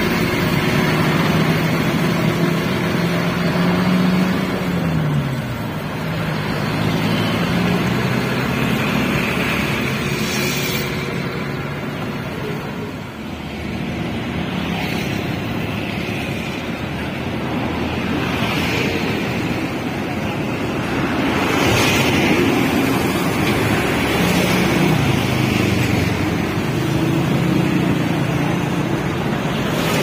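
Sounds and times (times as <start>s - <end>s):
diesel engine drone: 0.0s - 30.0s
passing trucks and traffic: 0.0s - 30.0s.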